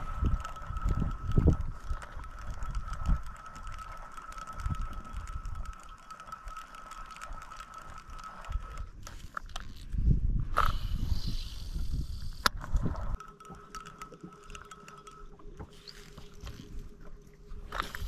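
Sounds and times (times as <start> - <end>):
steady high whine: 0.0 - 9.6
fishing reel gear clicking: 0.0 - 18.0.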